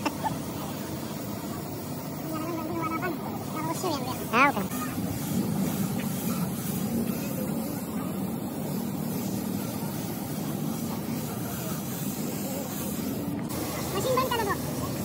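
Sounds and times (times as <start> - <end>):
low mechanical drone: 0.0 - 11.8.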